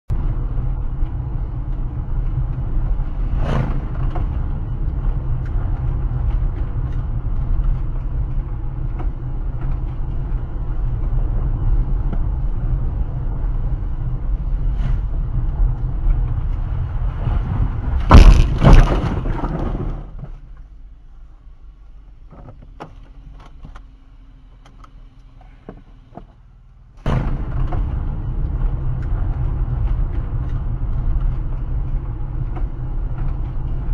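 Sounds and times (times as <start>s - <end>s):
gravel crunching under braking: 0.1s - 33.9s
tyres rumbling on gravel: 15.3s - 20.6s.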